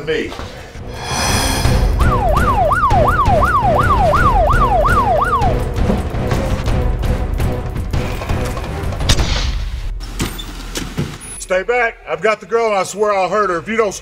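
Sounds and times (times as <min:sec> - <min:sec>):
low rumble: 0:00.9 - 0:02.7
police siren yelping: 0:01.9 - 0:05.7.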